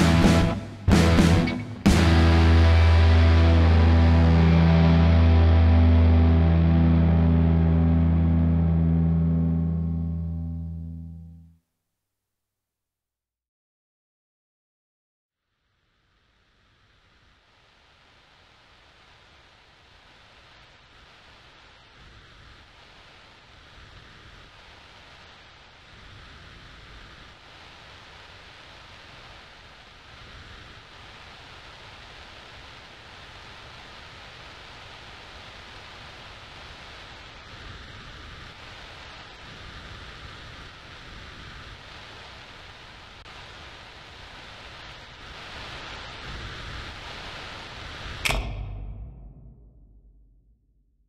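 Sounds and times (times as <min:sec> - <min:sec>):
steady hiss: 0:00.0 - 0:08.5, 0:15.4 - 0:50.6
low rumble: 0:48.2 - 0:51.0.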